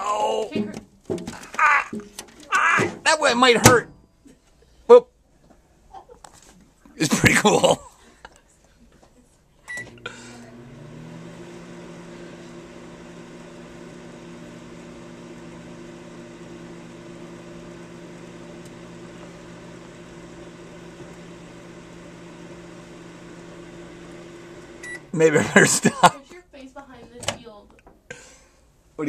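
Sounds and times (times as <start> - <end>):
microwave beep: 9.7 - 12.0, 18.0 - 25.1
microwave humming: 9.7 - 26.1.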